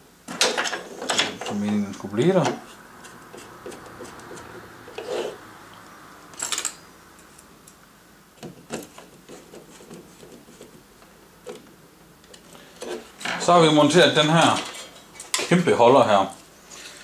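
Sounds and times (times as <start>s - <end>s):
screwdriver scraping: 2.4s - 5.4s.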